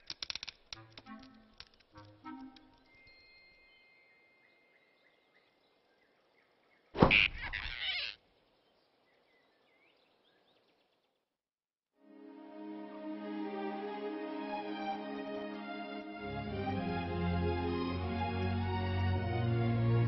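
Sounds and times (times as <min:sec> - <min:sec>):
quiet forest ambience: 0:00.0 - 0:11.4
soft music: 0:00.8 - 0:05.2, 0:12.0 - 0:20.0
faint bird chirps: 0:03.0 - 0:11.2.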